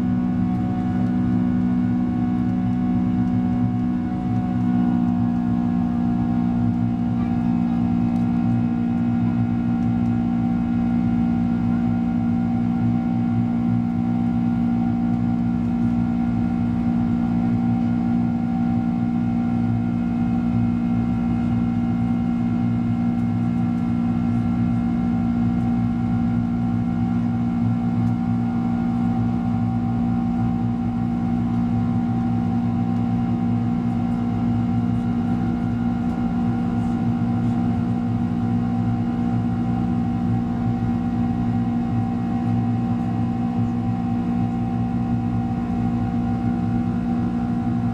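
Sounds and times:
jet engine drone in cabin: 0.0 - 47.9.

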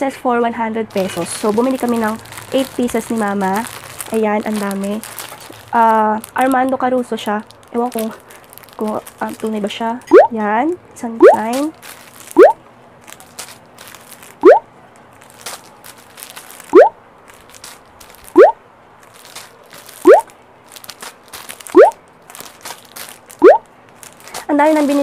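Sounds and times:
plastic wrapping crinkling: 0.8 - 25.0
rising bloop tone: 10.1 - 10.3, 11.2 - 11.4, 12.4 - 12.6, 14.4 - 14.6, 16.7 - 17.0, 18.3 - 18.6, 20.0 - 20.2, 21.7 - 22.0, 23.4 - 23.6.

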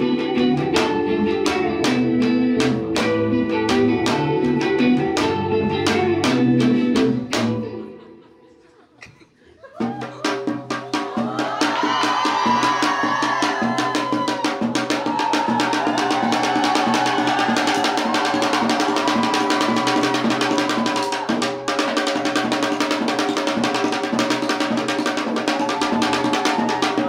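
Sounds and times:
live rock band music: 0.0 - 8.2, 10.4 - 27.0.

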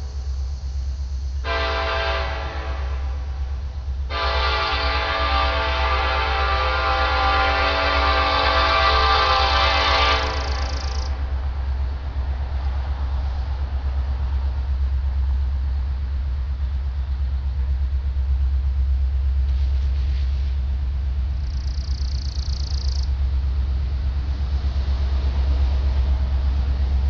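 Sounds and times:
freight train locomotive rumble: 0.0 - 27.0
brief high hiss: 19.5 - 20.6.

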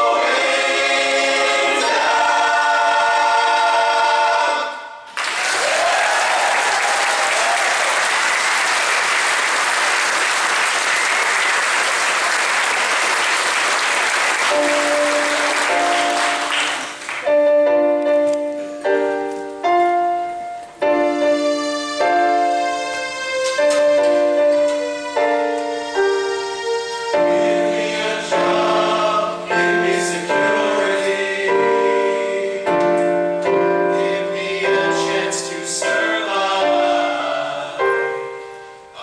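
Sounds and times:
men's choir singing: 0.0 - 5.0, 27.2 - 38.2
audience applause: 5.1 - 17.3
piano chords: 7.1 - 39.0.

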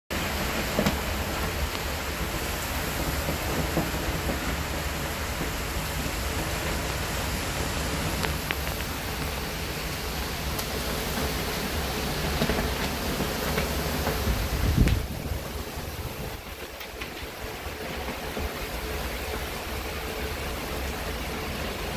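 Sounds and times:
heavy rain hissing: 0.1 - 21.9
low wind rumble: 0.1 - 21.9.

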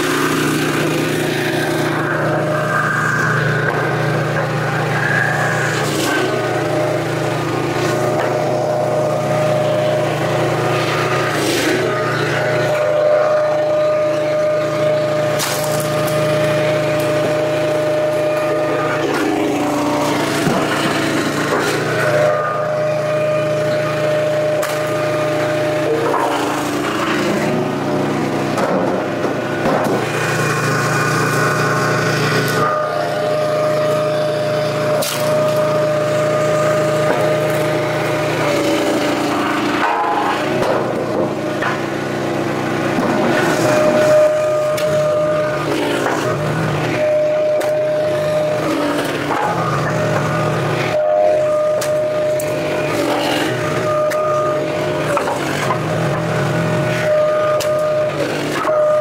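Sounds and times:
hydraulic whine: 0.0 - 59.0
log splitter engine humming: 0.0 - 59.0
wood cracking and splintering: 15.4 - 16.2.

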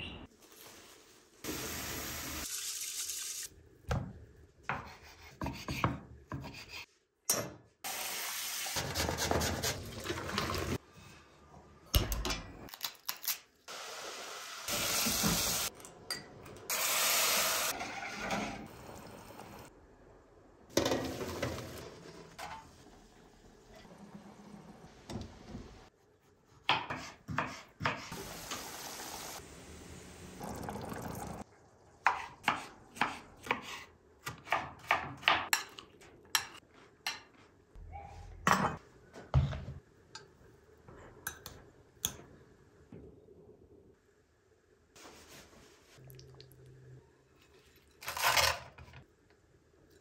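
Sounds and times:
water running: 7.9 - 10.8, 28.1 - 31.4.

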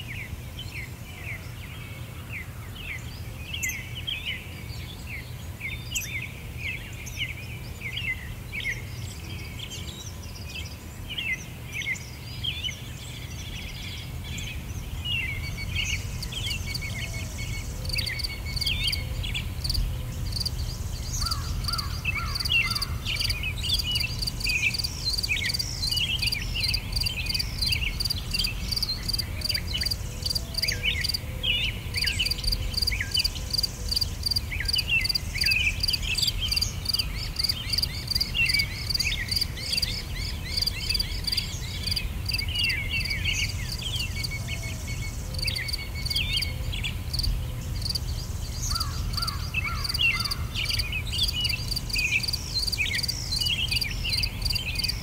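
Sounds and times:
bird chirps and calls: 9.6 - 55.0
insects chirping: 14.6 - 55.0.

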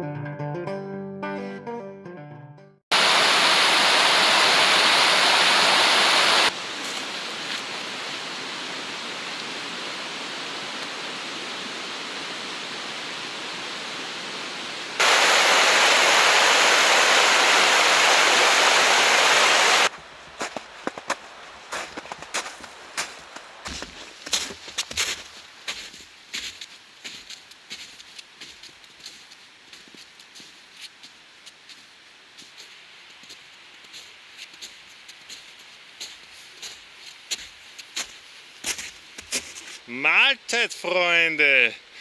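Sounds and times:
plucked guitar tune: 0.0 - 2.8
mountain stream rushing over rocks: 2.9 - 24.5.

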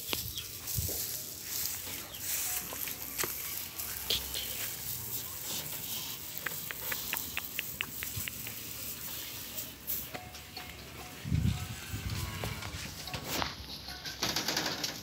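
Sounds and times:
straw rustling and crackling: 0.0 - 10.9
cow chewing: 0.1 - 14.1
high ticks: 5.6 - 9.1.

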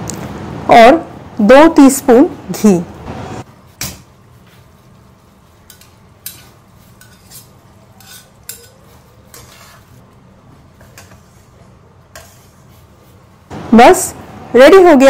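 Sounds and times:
metal spatula scraping iron pot: 5.6 - 10.0, 10.7 - 12.8.

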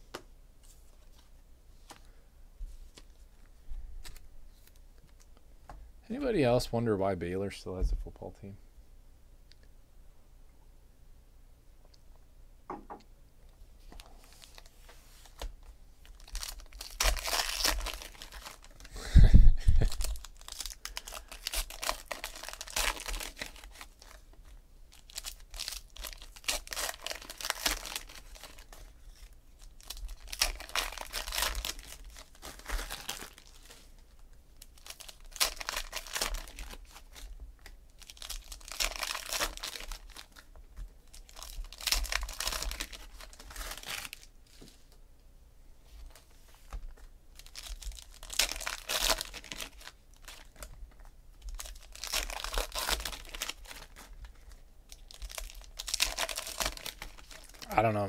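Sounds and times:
foil wrappers tearing and crinkling: 14.2 - 18.9, 19.7 - 34.0, 34.6 - 44.3, 47.4 - 50.7, 51.4 - 57.8.

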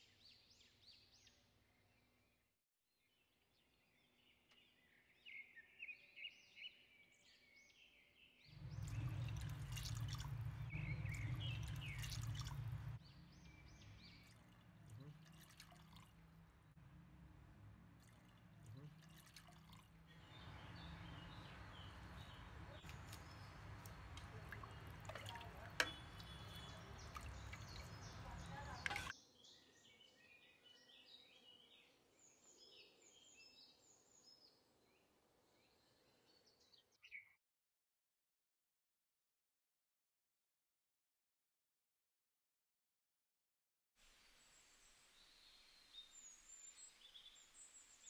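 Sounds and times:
water pouring into a pot: 8.6 - 13.0, 13.8 - 16.5, 17.8 - 20.8, 22.8 - 29.1.

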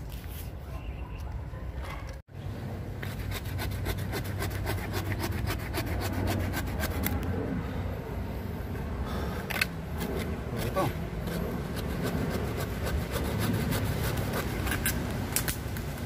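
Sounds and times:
hand saw cutting roots: 3.0 - 7.2, 9.9 - 15.6.

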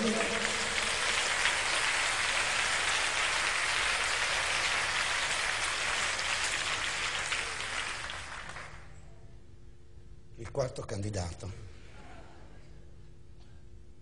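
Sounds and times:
audience applauding: 0.0 - 8.9.

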